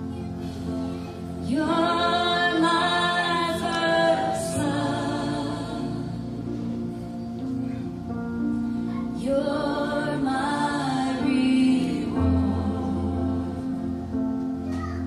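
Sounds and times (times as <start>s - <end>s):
keyboard and cello chords: 0.0s - 15.0s.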